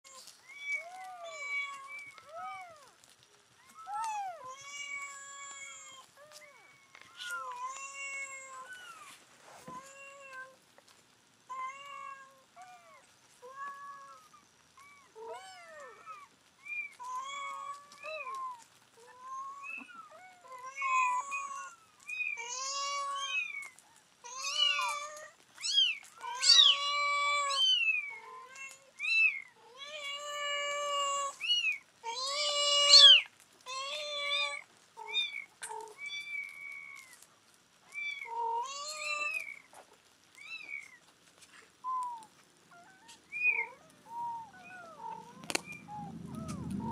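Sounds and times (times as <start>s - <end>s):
kittens mewing: 19.1s - 29.4s, 30.1s - 37.3s, 41.9s - 46.9s.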